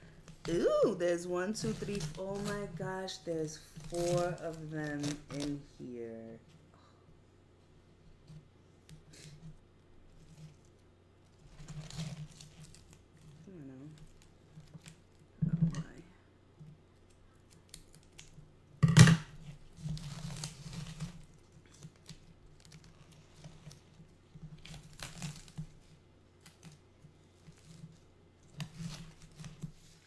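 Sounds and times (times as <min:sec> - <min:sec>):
packaging tearing and crinkling: 0:03.5 - 0:05.6, 0:11.4 - 0:15.3, 0:17.0 - 0:18.4, 0:19.3 - 0:30.0.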